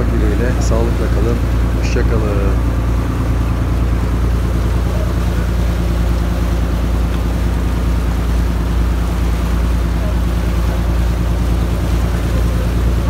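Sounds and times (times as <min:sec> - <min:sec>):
boat engine droning: 0:00.0 - 0:13.0.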